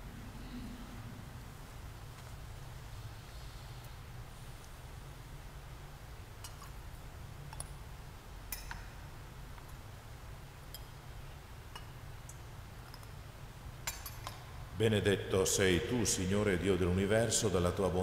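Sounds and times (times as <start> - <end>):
sound system hum: 0.0 - 13.7.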